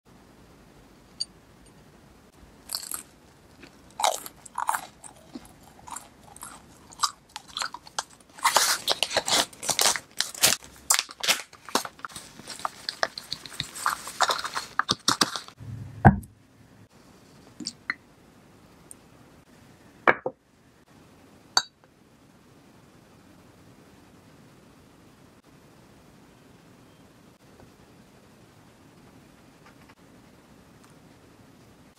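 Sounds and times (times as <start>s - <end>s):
powdered sugar crunching and crackling: 2.6s - 15.6s
low soft thud: 15.6s - 16.4s.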